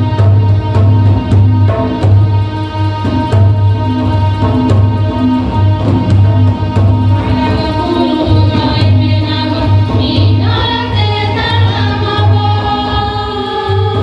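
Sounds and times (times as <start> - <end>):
barrel drum beat: 0.0 - 14.0
women singing together: 7.4 - 14.0.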